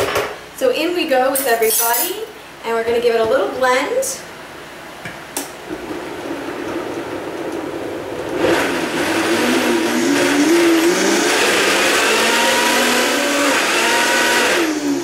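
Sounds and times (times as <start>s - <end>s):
blender motor whine: 8.4s - 15.0s.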